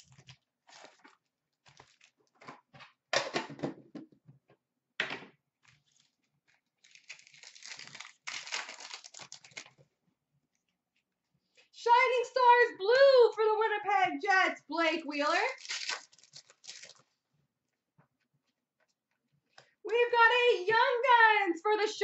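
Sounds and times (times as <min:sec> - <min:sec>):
wrapper crinkling being torn: 0:00.0 - 0:02.3, 0:05.7 - 0:09.8, 0:15.4 - 0:17.1.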